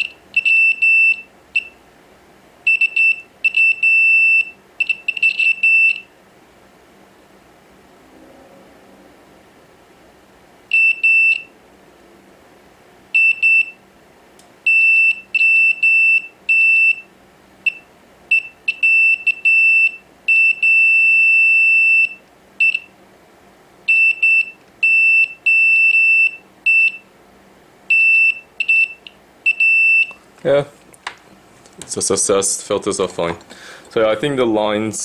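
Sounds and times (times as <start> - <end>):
multimeter continuity beeps: 0.0 - 1.8, 2.6 - 6.1, 10.7 - 11.5, 13.2 - 13.8, 14.7 - 22.9, 23.9 - 27.1, 27.9 - 30.2.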